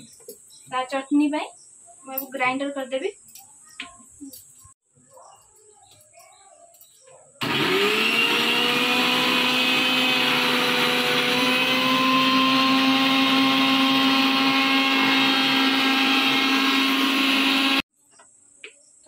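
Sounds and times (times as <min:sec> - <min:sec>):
electric mixer grinder whining: 0:07.4 - 0:17.9.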